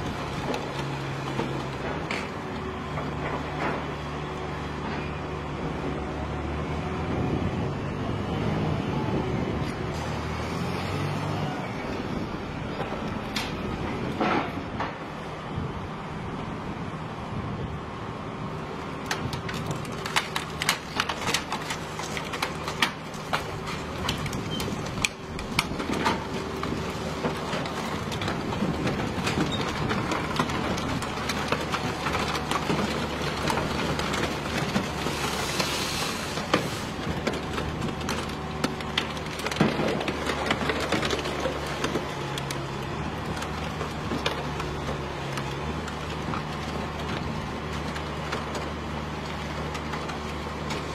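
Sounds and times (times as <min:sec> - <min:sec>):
metal cracking and snapping: 0:19.0 - 0:50.9.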